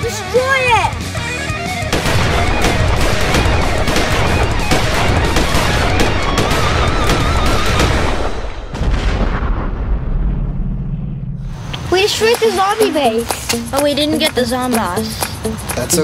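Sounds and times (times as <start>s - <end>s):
background music: 0.0s - 8.6s, 11.8s - 16.0s
machine-gun fire: 1.9s - 10.6s.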